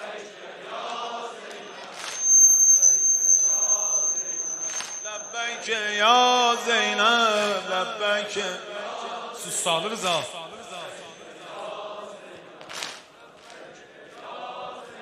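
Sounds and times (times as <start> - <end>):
high whistle-like tone: 1.5 - 8.9
man singing a lament: 5.3 - 11.2
men chanting a lament: 5.5 - 15.0.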